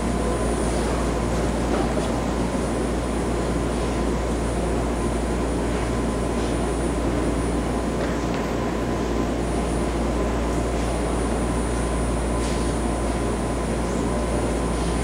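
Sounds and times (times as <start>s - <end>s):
train humming at platform: 0.0s - 15.0s.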